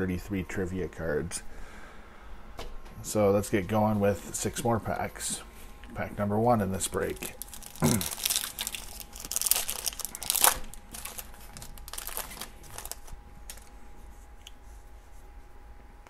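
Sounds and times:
foil wrapper tearing and crinkling: 7.0s - 13.7s
cards rustling: 7.0s - 13.8s.

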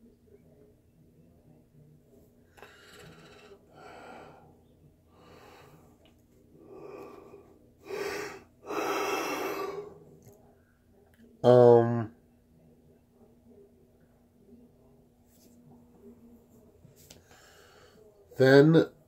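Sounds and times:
man breathing heavily: 2.6s - 6.0s, 6.6s - 10.0s.

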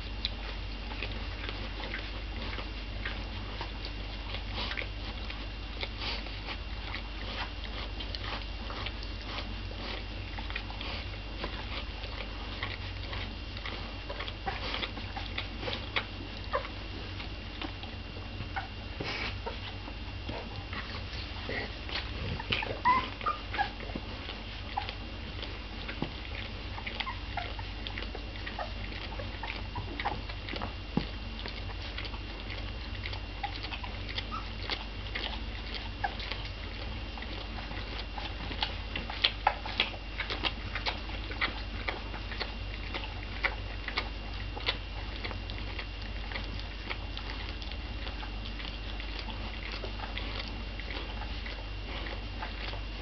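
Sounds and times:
dog licking puppies: 0.0s - 53.0s
puppy squeaks: 22.5s - 23.8s.

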